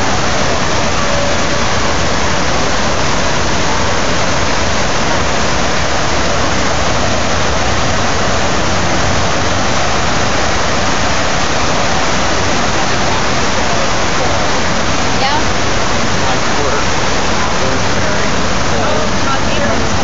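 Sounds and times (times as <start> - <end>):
waterfall rushing into a pool: 0.0 - 20.0.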